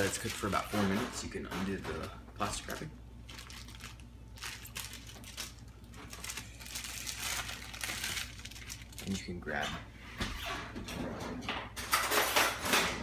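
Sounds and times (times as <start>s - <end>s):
plastic film crinkling: 0.0s - 0.8s, 2.5s - 9.4s.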